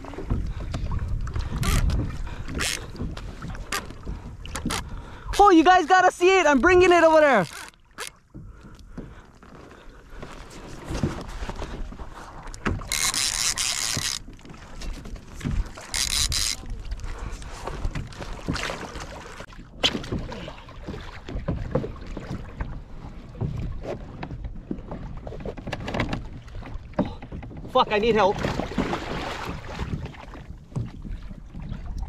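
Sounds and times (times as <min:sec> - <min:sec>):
water splashing: 0:00.0 - 0:09.2, 0:10.5 - 0:32.0
knocks against kayak hull: 0:28.4 - 0:31.2.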